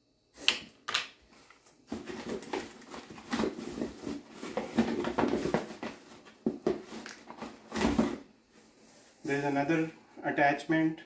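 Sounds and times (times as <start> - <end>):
packaging rustling and crinkling: 1.3 - 9.3.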